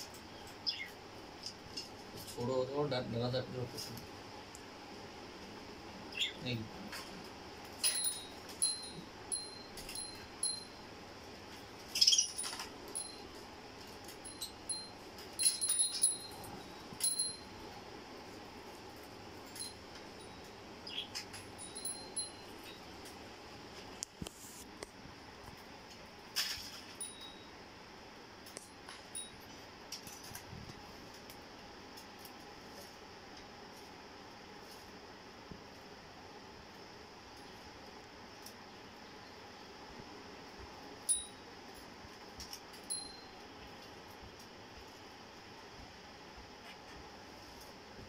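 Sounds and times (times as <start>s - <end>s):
small metal bell tinkling: 7.8s - 10.8s, 12.0s - 13.4s, 14.1s - 17.6s, 19.5s - 20.5s, 21.5s - 22.8s, 26.9s - 27.5s, 29.1s - 29.5s, 41.1s - 41.5s, 42.8s - 43.4s.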